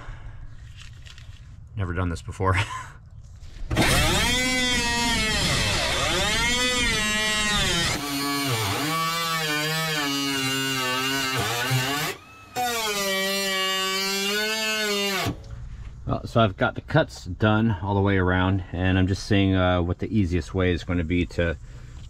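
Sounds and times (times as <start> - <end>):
die grinder cutting sheet metal: 3.7 - 15.4.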